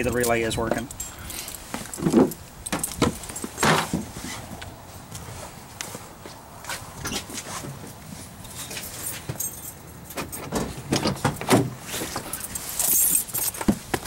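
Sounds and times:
keys jangling: 0.0 - 3.6, 8.6 - 10.5, 12.2 - 13.7
handling knocks and thumps: 0.0 - 5.3, 8.6 - 14.0.

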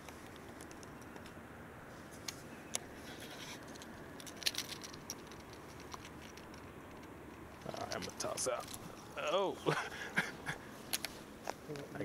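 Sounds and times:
light scratching of fishing line: 0.0 - 9.2.

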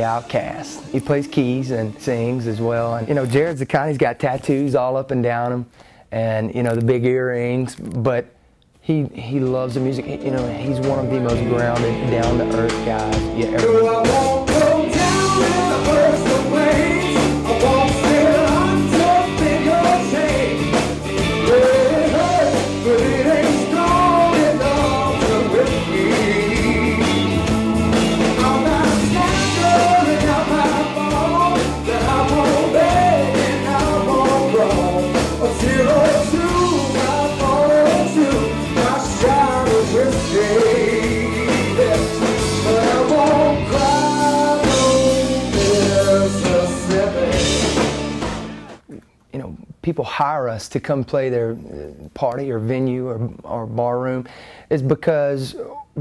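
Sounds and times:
rock band playing: 0.0 - 3.2, 9.7 - 48.9
man singing: 0.0 - 3.5, 9.3 - 27.4, 28.2 - 47.9.

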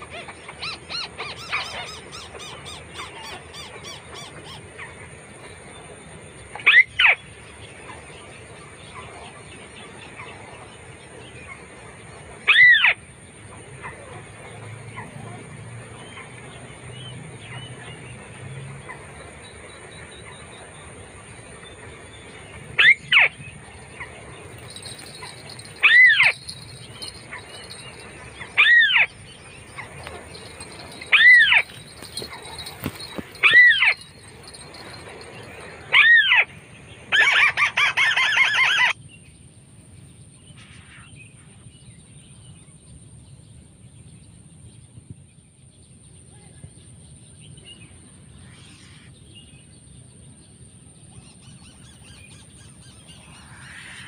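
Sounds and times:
bird rapid chattering: 24.5 - 36.4.

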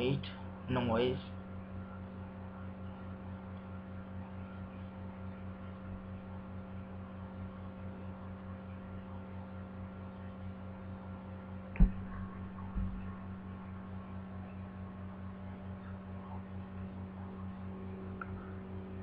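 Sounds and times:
electrical hum: 0.0 - 19.0
soft knock: 11.8 - 13.1.

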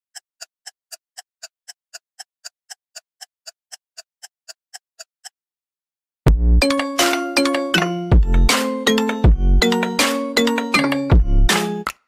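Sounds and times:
steady clock-like ticks: 0.1 - 5.4.

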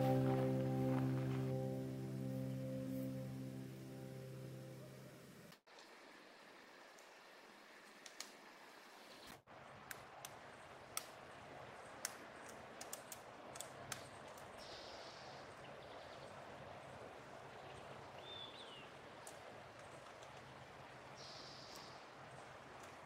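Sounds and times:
short high bird note: 0.0 - 4.4
faint outdoor hiss: 0.0 - 23.0.

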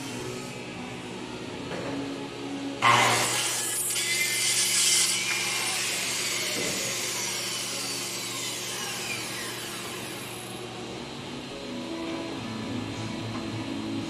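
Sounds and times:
circular saw cutting plywood: 2.8 - 10.6.

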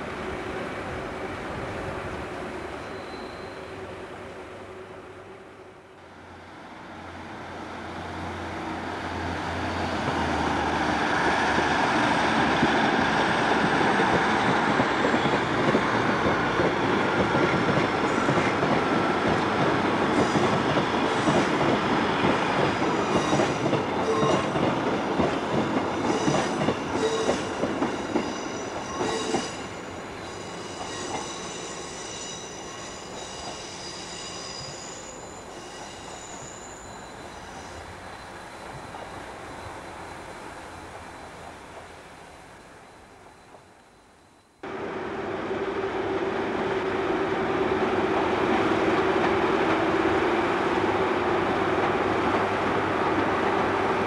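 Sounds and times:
wheel squeal: 2.8 - 3.6, 26.1 - 38.2.

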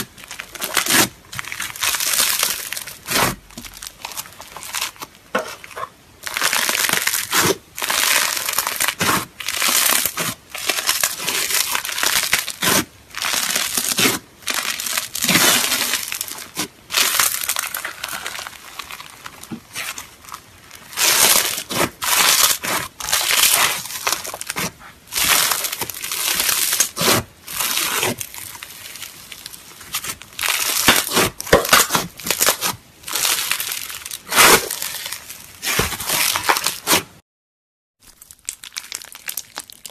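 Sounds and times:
crunchy slime being kneaded: 0.0 - 37.2, 38.0 - 39.9.

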